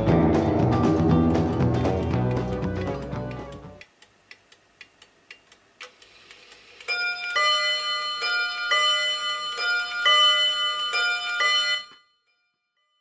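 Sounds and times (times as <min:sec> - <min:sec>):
wall clock ticking: 0:02.0 - 0:12.0
clock chime strikes: 0:06.9 - 0:13.0.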